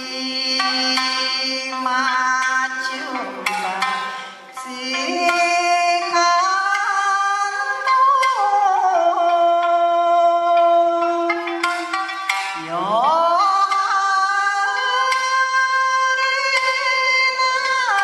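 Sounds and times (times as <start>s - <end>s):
person singing long notes: 0.0s - 11.7s.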